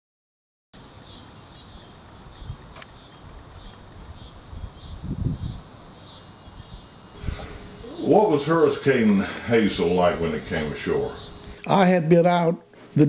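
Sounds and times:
faint hiss: 0:00.8 - 0:13.0.

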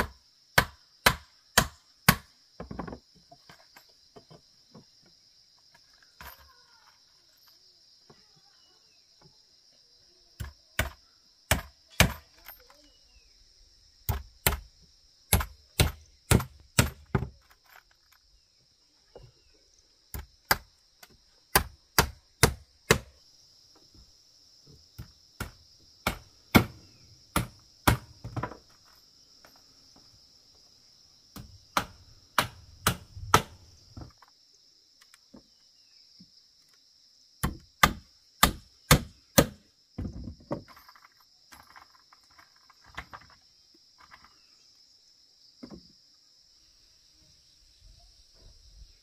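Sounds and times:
high insect drone: 0:00.0 - 0:49.0
hammer knocking on bamboo slats: 0:31.4 - 0:34.1.

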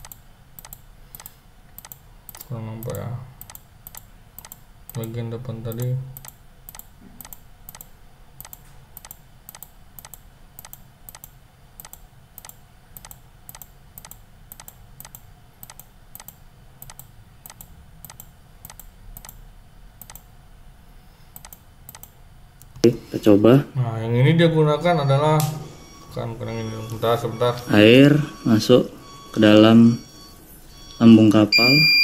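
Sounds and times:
computer mouse clicking: 0:00.0 - 0:19.4, 0:20.0 - 0:20.3, 0:21.4 - 0:22.8
faint low hum: 0:00.0 - 0:32.0.

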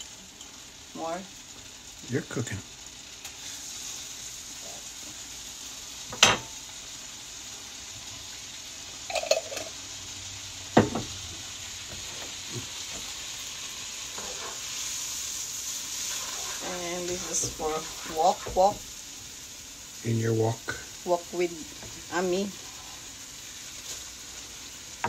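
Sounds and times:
butter sizzling in a wok: 0:00.0 - 0:25.0.

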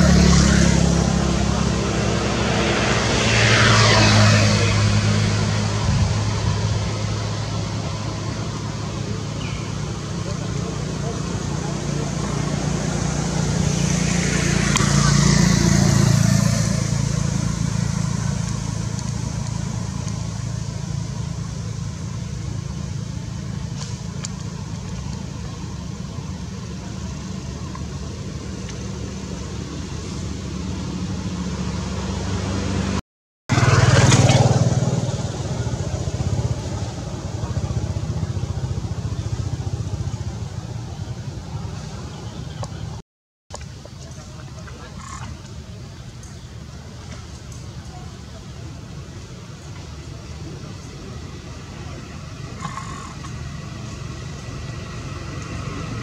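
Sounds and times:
vehicle passing close by: 0:00.0 - 0:43.0, 0:50.3 - 0:56.0
vehicle engines running: 0:00.0 - 0:56.0.

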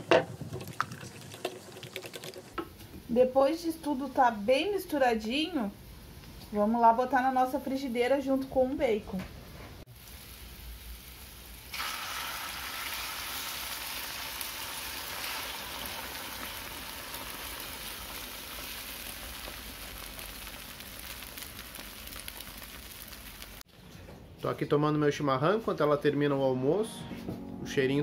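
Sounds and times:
egg sizzling in a frying pan: 0:09.8 - 0:23.7.

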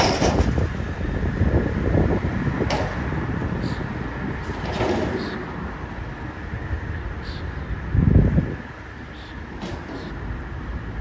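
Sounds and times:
metal clank: 0:00.0 - 0:00.7
dumpster clatter: 0:00.0 - 0:00.9, 0:04.4 - 0:05.5
garbage truck engine and hydraulics: 0:00.0 - 0:11.0.

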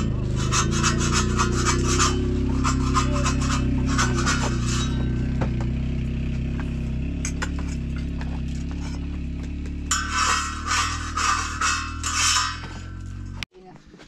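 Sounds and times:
flatbread rubbing and scraping: 0:00.0 - 0:05.0, 0:09.9 - 0:13.0
metal dishes clinking: 0:00.0 - 0:05.8, 0:07.1 - 0:09.0, 0:09.9 - 0:13.4.

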